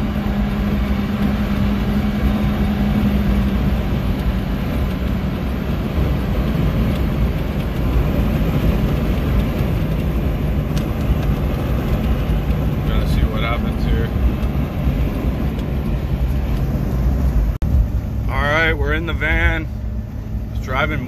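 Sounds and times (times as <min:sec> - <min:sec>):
road noise: 0:00.0 - 0:21.0
van engine droning: 0:00.0 - 0:21.0.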